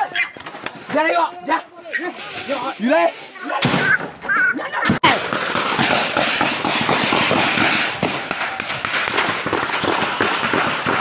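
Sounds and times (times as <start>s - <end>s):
rapid gunfire: 5.1s - 11.0s.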